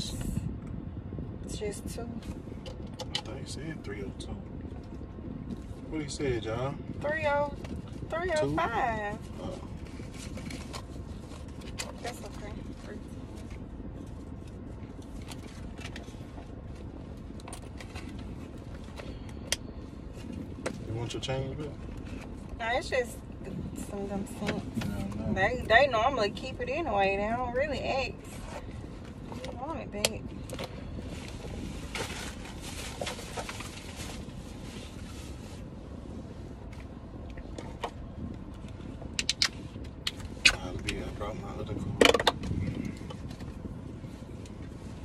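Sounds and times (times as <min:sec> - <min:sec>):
car engine idling: 0:01.5 - 0:45.0.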